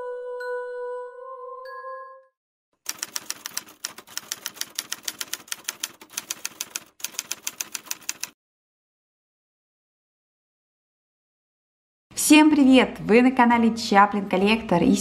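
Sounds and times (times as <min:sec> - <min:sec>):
typewriter keys clacking: 0:02.9 - 0:08.4.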